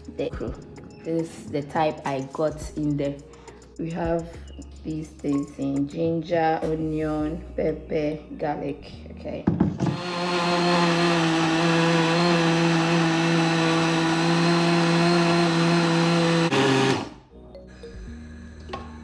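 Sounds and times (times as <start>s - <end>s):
electric blender running: 9.9s - 17.2s.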